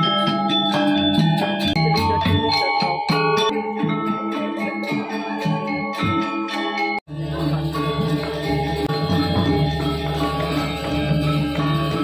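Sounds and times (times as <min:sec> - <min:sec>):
metallophone and gong tones: 0:06.7 - 0:12.0
drums and cymbals: 0:07.0 - 0:12.0.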